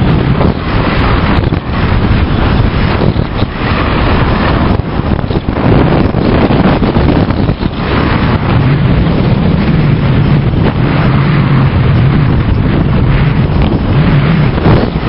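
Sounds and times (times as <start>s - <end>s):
skis scraping on snow: 0.0s - 15.0s
wind buffeting microphone: 0.0s - 15.0s.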